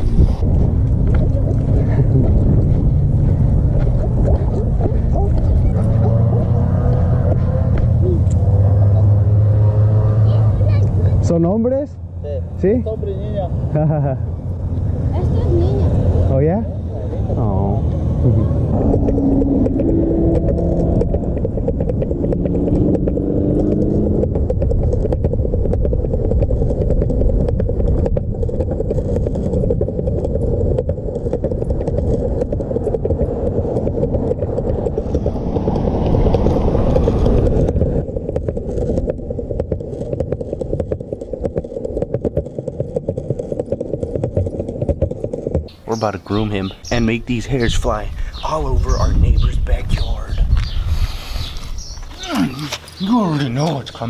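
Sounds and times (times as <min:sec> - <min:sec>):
longboard wheels rolling on concrete: 0:00.0 - 0:54.0.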